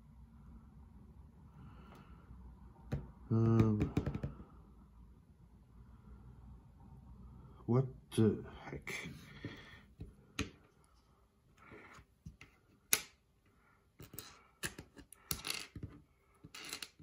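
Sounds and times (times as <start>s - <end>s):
plastic bricks clicking and clattering: 14.0s - 17.0s.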